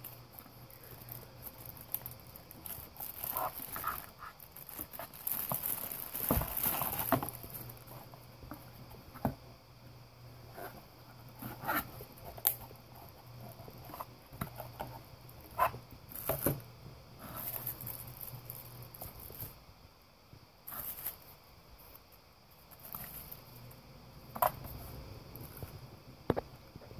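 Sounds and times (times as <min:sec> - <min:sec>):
plastic bags and bubble wrap crinkling: 0:00.0 - 0:08.8, 0:10.5 - 0:16.6, 0:17.2 - 0:19.6
faint low hum: 0:00.0 - 0:26.9.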